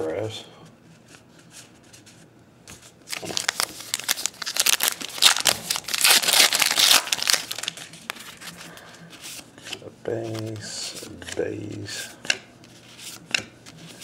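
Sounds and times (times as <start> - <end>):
wrapper being torn and crinkled: 3.1 - 8.2.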